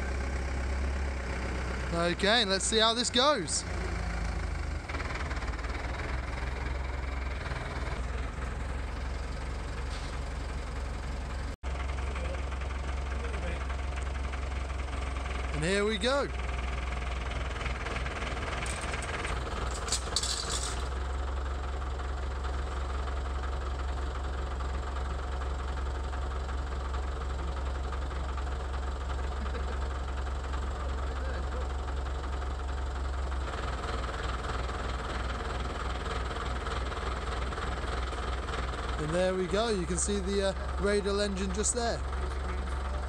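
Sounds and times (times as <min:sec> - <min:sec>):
engine running: 0:00.0 - 0:43.0
metallic clinks: 0:19.7 - 0:20.9.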